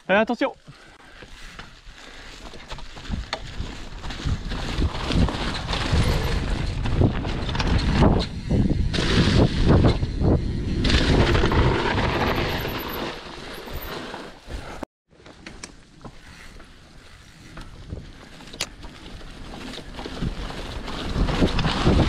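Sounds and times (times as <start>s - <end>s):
bike tyres on dirt trail: 0.0s - 22.0s
wind over microphone: 1.3s - 12.7s, 16.1s - 22.0s
bike frame rattling: 1.6s - 14.1s, 15.8s - 22.0s.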